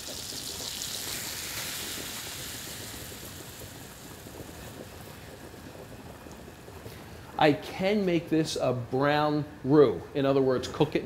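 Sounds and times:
butter sizzling in a pan: 0:00.0 - 0:07.5.

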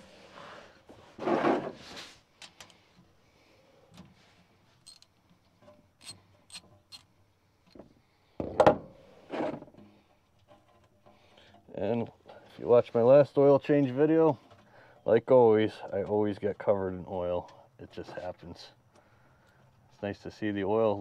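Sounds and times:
ratchet metallic clicks: 0:04.8 - 0:05.1, 0:06.0 - 0:07.1.

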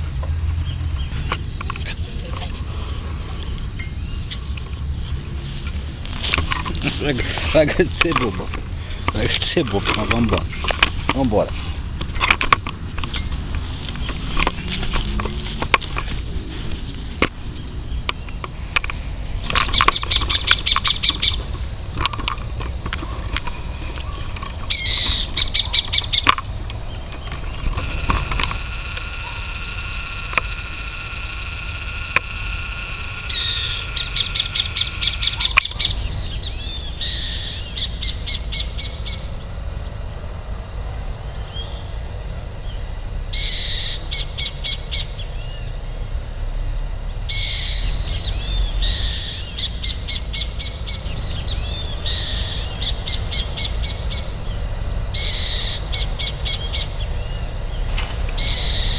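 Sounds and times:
owl screeching and chattering: 0:19.6 - 0:21.5, 0:24.0 - 0:26.4, 0:27.3 - 0:39.3, 0:43.3 - 0:45.2, 0:47.3 - 0:54.3, 0:55.2 - 0:57.0, 0:58.2 - 0:58.9.

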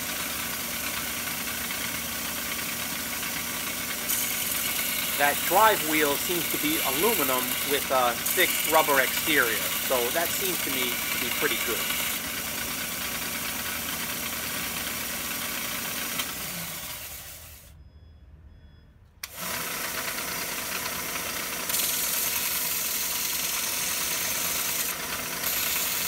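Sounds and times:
belt grinder motor hum: 0:00.0 - 0:17.7, 0:19.2 - 0:26.0
blade scraping on sanding belt: 0:03.9 - 0:12.4, 0:21.7 - 0:26.0.

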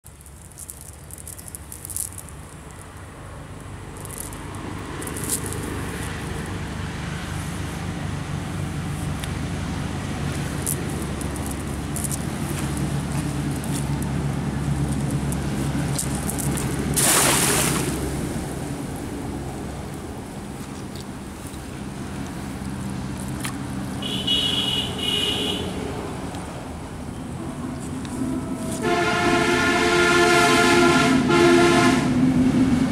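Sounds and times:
cast net splashing on water: 0:10.5 - 0:19.0.

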